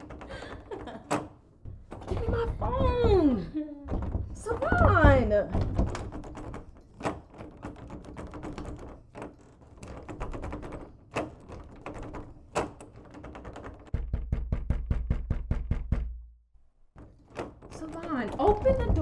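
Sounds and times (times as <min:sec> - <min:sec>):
knocking on a door: 0:00.0 - 0:09.0, 0:13.0 - 0:16.4, 0:17.0 - 0:19.0.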